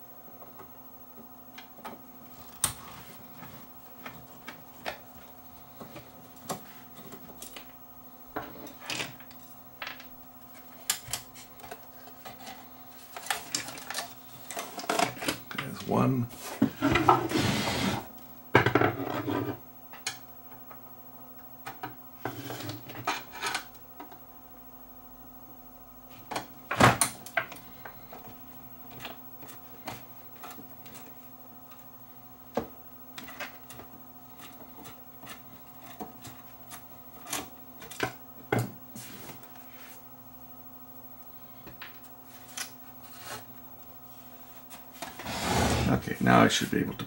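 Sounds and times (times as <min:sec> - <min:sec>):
faint steady hum: 0:00.0 - 0:47.0.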